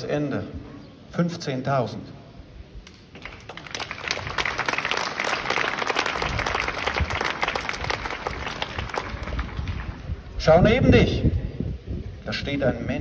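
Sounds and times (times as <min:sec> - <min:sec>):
crowd clapping: 0:02.9 - 0:10.3.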